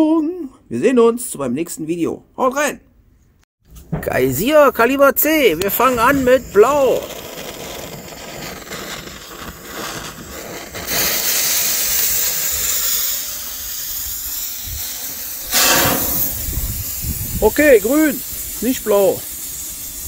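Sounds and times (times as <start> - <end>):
firework fountain hissing: 4.4 - 20.0.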